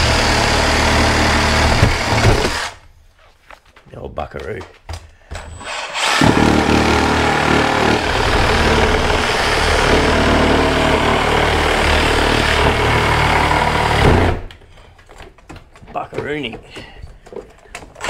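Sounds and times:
power tool running hard: 0.0s - 2.8s, 5.6s - 14.2s.

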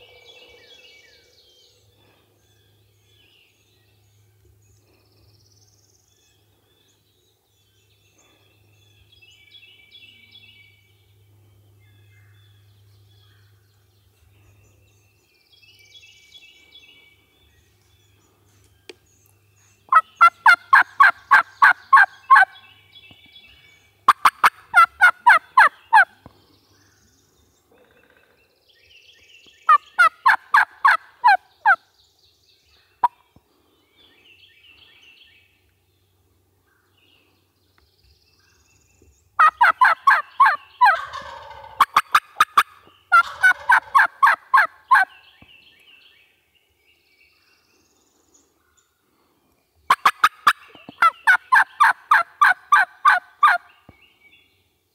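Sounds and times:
turkeys chattering: 19.9s - 22.6s, 24.0s - 26.1s, 29.7s - 31.8s, 39.4s - 45.1s, 49.9s - 53.7s
turkeys yelping: 19.9s - 22.6s, 24.1s - 26.1s, 29.7s - 31.8s, 39.4s - 45.1s, 49.9s - 53.7s.

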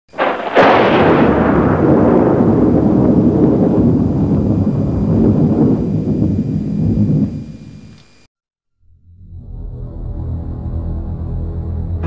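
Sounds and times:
loud boom with deep rumble: 0.2s - 7.6s.

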